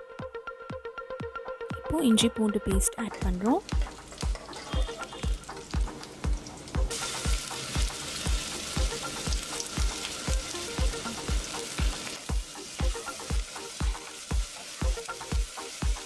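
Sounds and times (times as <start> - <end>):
background music with thumping beat: 0.0 - 16.0
onions sizzling in hot oil: 3.4 - 16.0.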